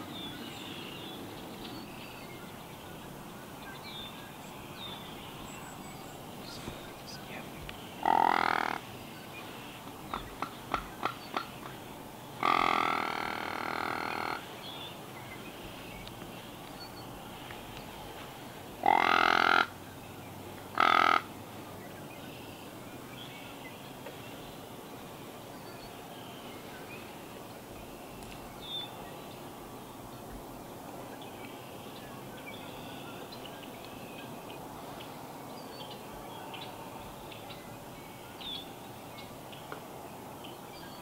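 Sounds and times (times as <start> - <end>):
deer grunt call: 8.0 - 8.8, 12.4 - 14.5, 18.8 - 19.7, 20.8 - 21.3.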